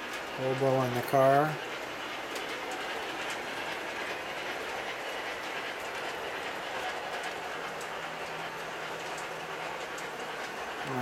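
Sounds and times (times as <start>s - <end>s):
metal wheels rolling on rail: 0.0s - 11.0s.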